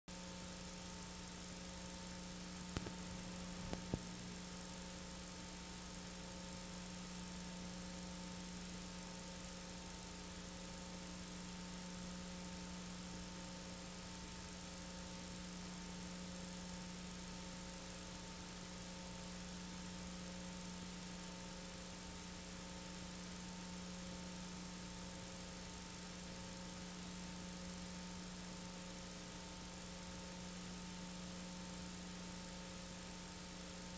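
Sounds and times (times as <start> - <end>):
constant hiss: 0.1 - 33.9
electrical mains hum: 0.1 - 33.9
faint clicks: 2.7 - 4.1.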